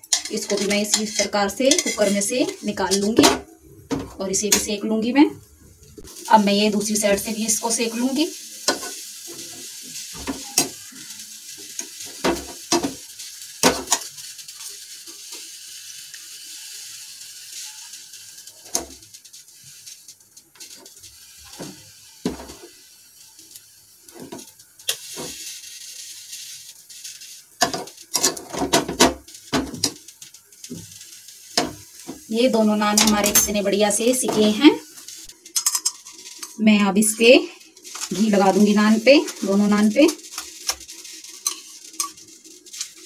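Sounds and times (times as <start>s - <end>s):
metal utensil clinking on grate: 0.0s - 4.8s, 8.6s - 15.5s, 27.6s - 36.6s, 37.2s - 43.0s
gas burner flame hissing: 0.0s - 43.0s.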